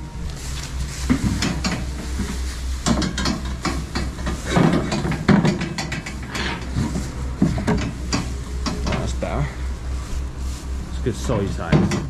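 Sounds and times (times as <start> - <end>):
calves knocking and clattering: 1.1 - 9.3, 11.7 - 12.0.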